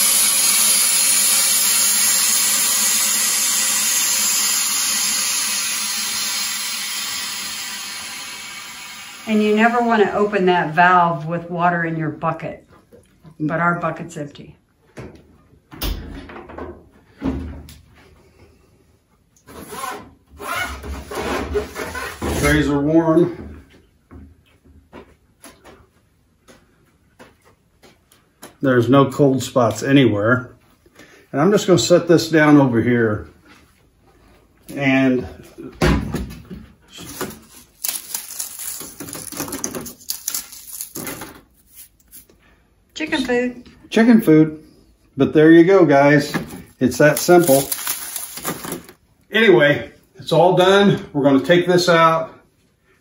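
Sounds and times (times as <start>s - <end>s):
dry bread crunching by hand: 37.4s - 41.0s, 47.0s - 49.0s.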